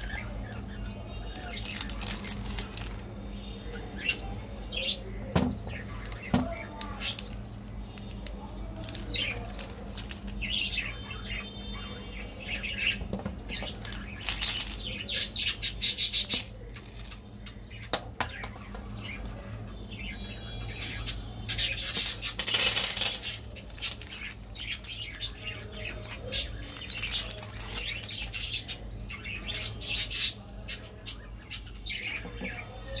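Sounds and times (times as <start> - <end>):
foil wrappers crinkling: 1.3 - 3.1, 5.9 - 10.8, 13.6 - 15.2, 16.3 - 17.5, 18.7 - 21.1, 22.2 - 28.6.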